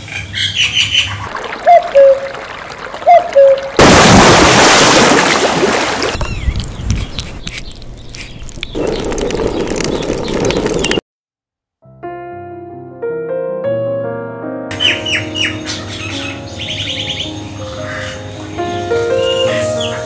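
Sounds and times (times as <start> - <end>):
bird chirping: 6.2 - 11.0, 14.7 - 20.0.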